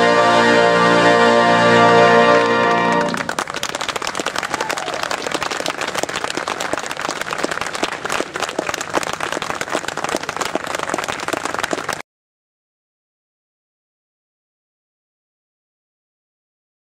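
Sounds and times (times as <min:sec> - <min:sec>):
audience applauding: 0:01.9 - 0:12.0.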